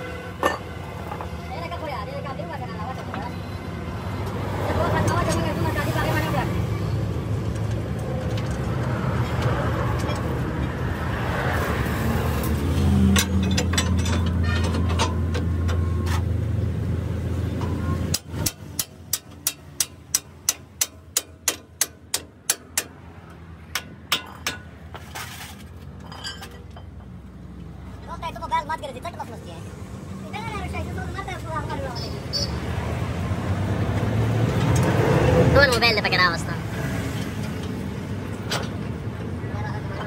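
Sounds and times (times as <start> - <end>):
hand tools clicking on bolt: 13.1 - 15.8, 18.1 - 24.7.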